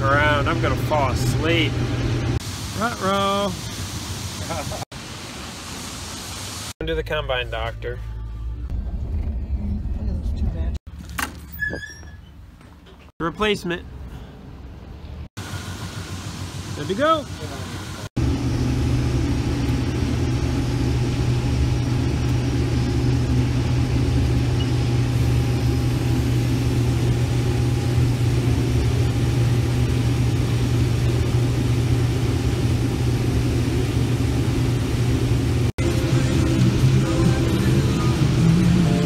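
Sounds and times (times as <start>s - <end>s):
combine harvester droning: 15.4s - 39.0s.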